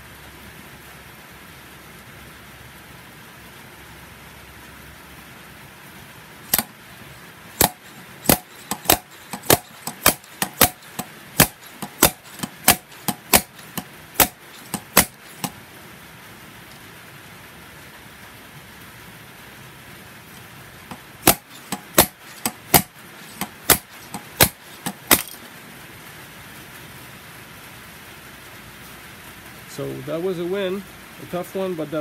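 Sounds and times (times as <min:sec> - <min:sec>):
slide hammer metallic knocks: 0:06.5 - 0:06.8, 0:07.6 - 0:15.6, 0:20.9 - 0:25.4.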